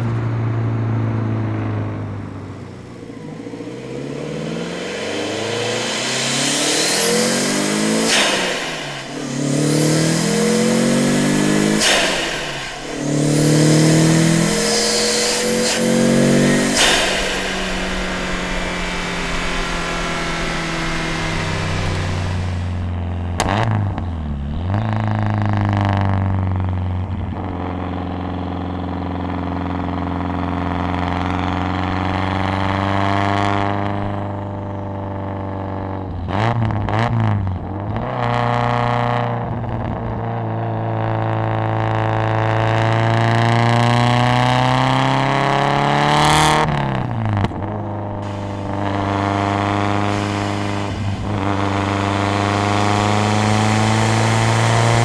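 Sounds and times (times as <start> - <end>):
car engine accelerating: 0.0 - 55.0
exhaust pops and crackles: 15.6 - 26.5, 47.2 - 55.0.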